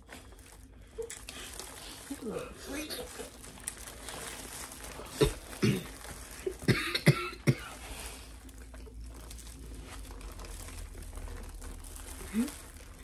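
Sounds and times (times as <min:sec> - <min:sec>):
person coughing: 0:05.1 - 0:07.8.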